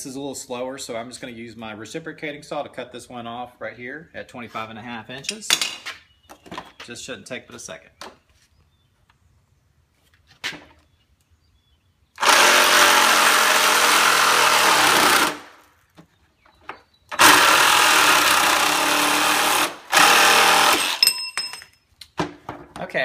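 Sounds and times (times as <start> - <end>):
reciprocating saw cutting metal: 12.2 - 15.4, 17.1 - 21.1.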